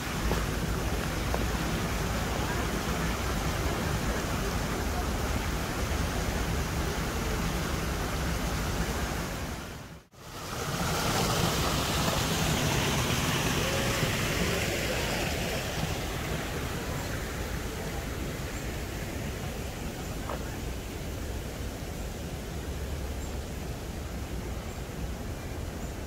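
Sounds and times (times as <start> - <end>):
waterfall rushing: 0.0 - 25.8.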